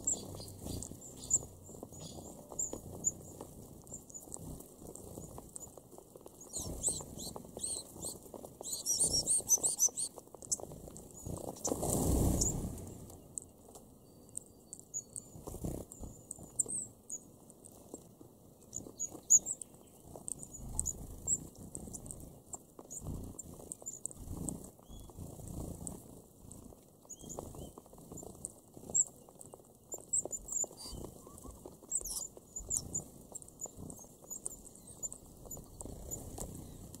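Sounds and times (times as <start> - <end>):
flock of wings flapping: 0.0 - 13.2, 30.0 - 37.0
finches chirping: 0.0 - 17.2, 18.6 - 25.6, 27.0 - 37.0
birds pecking seed husks: 0.0 - 37.0.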